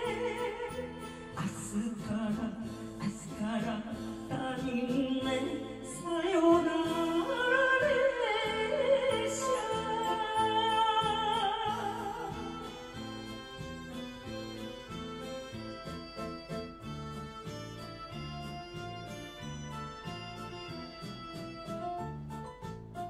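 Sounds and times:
woman singing into microphone: 0.0s - 13.0s
karaoke backing music: 0.0s - 23.0s.

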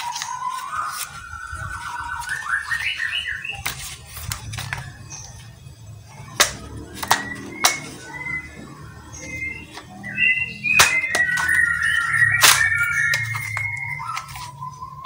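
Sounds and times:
rising electronic beeps: 4.2s - 15.0s
toy gun clicks: 6.4s - 7.9s.

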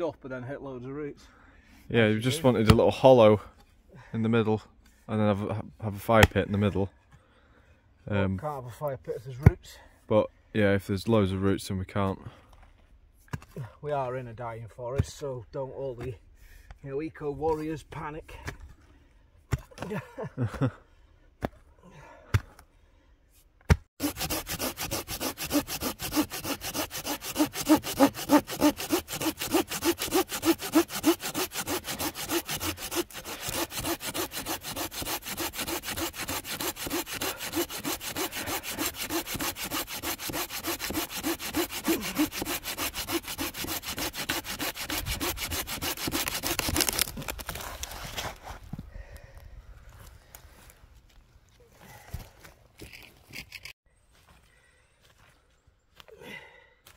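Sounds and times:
pruning saw cutting branch: 24.0s - 47.6s.

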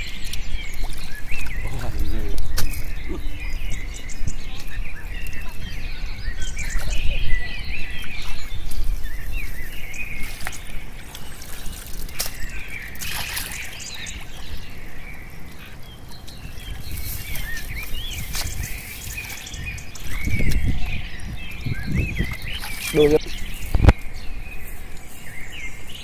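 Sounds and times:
small birds chirping: 0.0s - 26.0s
hands sloshing through wet mud: 6.6s - 20.7s, 22.1s - 23.9s.

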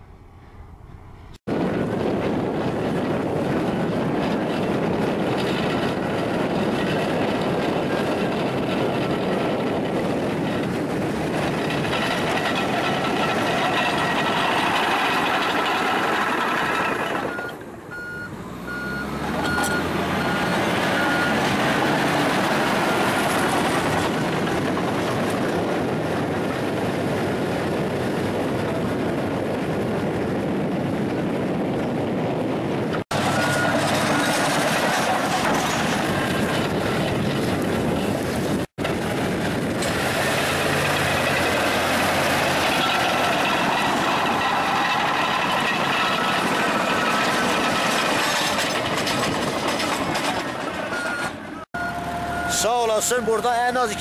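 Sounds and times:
heavy machine engine running: 0.1s - 54.0s
reversing alarm beeping: 17.3s - 21.4s, 33.2s - 34.3s, 50.9s - 54.0s.

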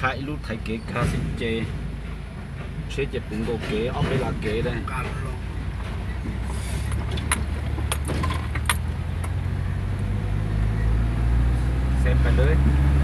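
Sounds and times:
vehicle engine and road noise: 0.0s - 13.0s
sharp rattles: 0.9s - 9.5s.

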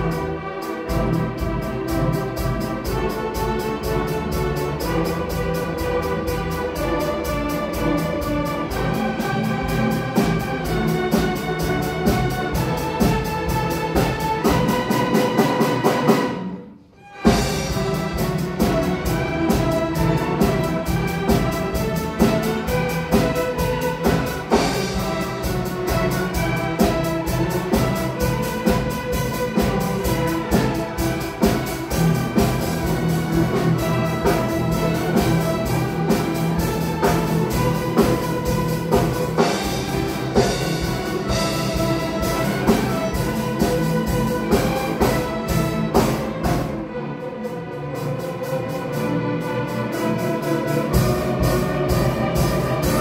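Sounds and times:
orchestra playing classical piece: 0.0s - 53.0s.

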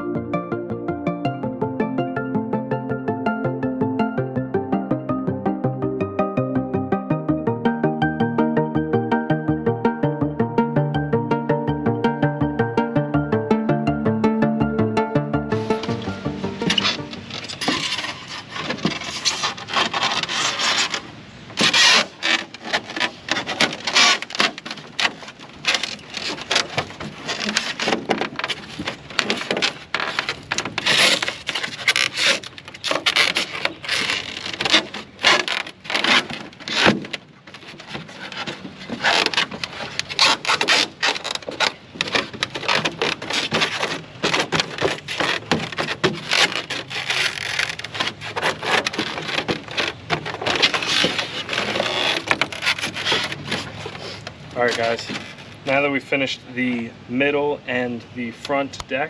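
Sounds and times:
foam board scraping against hull: 15.6s - 55.9s.

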